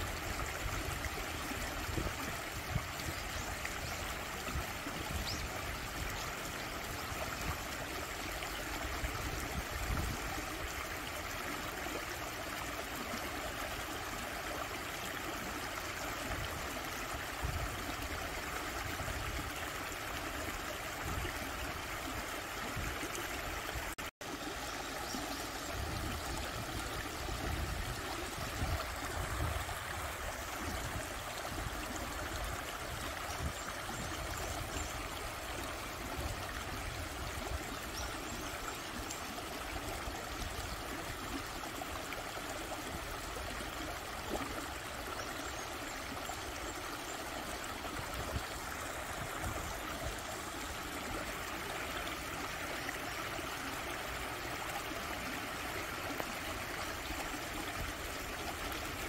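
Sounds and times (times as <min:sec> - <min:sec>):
stream babbling over stones: 0:00.0 - 0:59.0.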